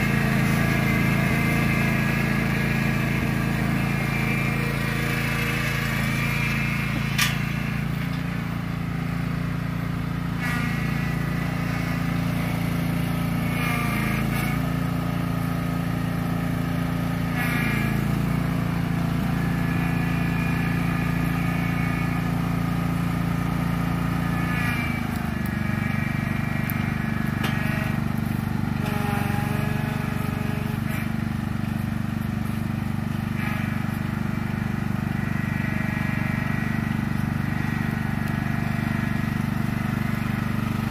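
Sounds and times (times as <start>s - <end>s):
lawn tractor engine running: 0.0s - 40.9s.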